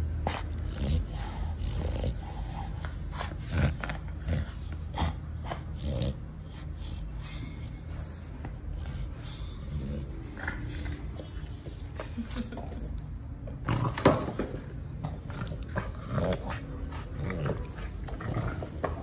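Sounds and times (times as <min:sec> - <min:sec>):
small dog growling: 0:00.3 - 0:07.3, 0:09.6 - 0:12.0, 0:13.6 - 0:19.0.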